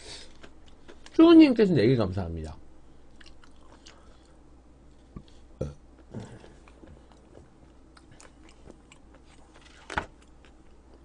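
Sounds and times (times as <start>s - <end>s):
chewing and mouth noises: 3.1s - 9.6s.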